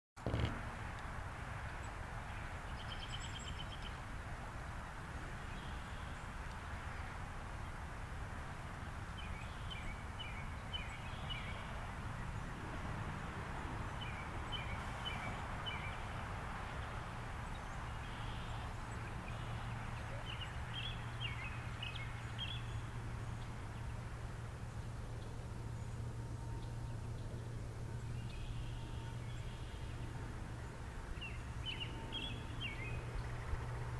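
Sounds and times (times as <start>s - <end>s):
low hum: 9.5s - 33.9s
birds chirping: 13.8s - 33.9s.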